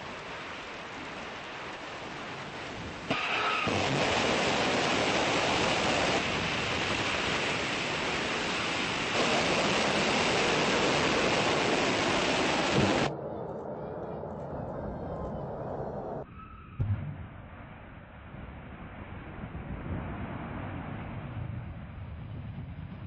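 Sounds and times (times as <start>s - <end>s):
rocket exhaust roar: 0.0s - 16.2s.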